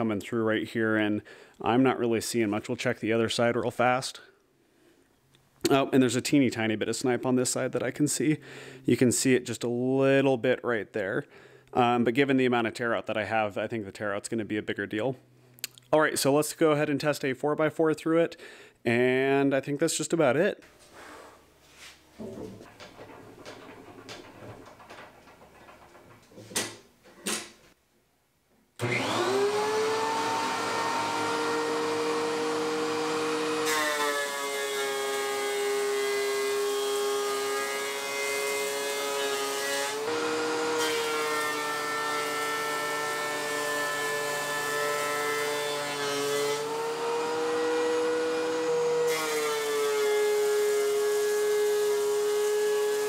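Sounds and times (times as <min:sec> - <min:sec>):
planer cutting board: 0:28.8 - 0:53.0
thickness planer whine: 0:28.8 - 0:53.0.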